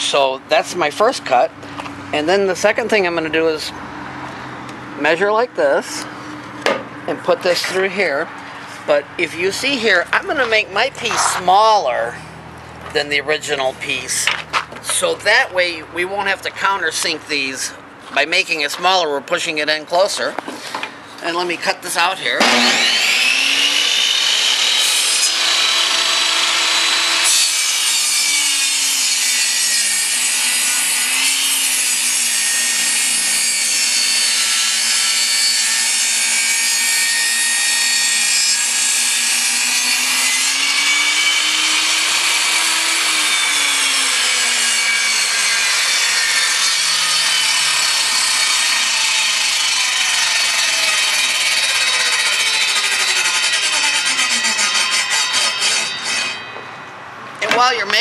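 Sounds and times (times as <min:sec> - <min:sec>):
table saw cutting wood: 0:07.5 - 0:12.2, 0:22.0 - 0:56.6.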